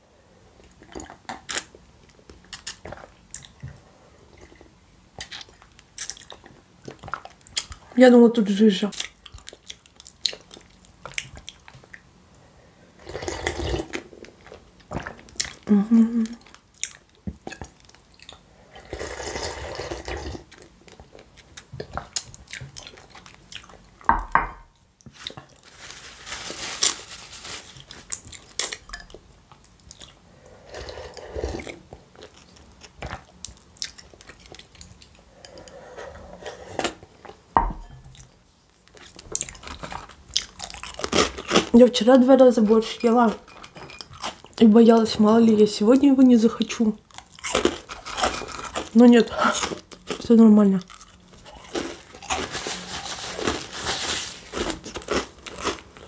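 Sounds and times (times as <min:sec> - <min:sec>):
chewing: 0:09.0 - 0:12.0, 0:13.1 - 0:24.1, 0:30.8 - 0:37.4, 0:50.8 - 0:53.6
slurping soup: 0:13.0 - 0:14.1, 0:18.7 - 0:20.6, 0:30.4 - 0:31.9, 0:35.3 - 0:37.3.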